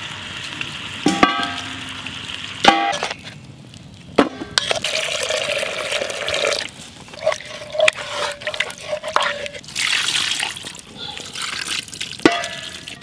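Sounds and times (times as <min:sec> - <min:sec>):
water pouring into pot: 0:04.7 - 0:13.0
wooden spoon stirring and scraping pot: 0:06.3 - 0:11.6
wooden spoon knocking metal pot: 0:12.3 - 0:12.8.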